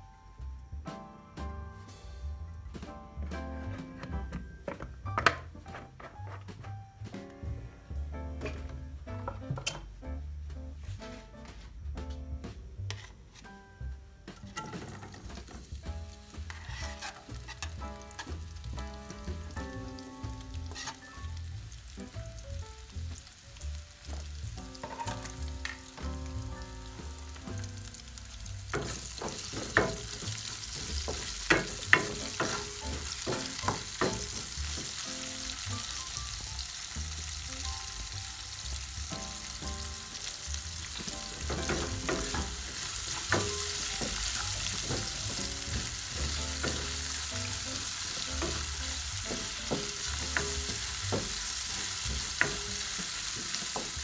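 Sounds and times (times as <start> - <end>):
wooden spoon scraping a pan: 12.8 - 13.6, 14.4 - 18.6, 20.6 - 21.2
onions sizzling in hot oil: 14.5 - 54.0.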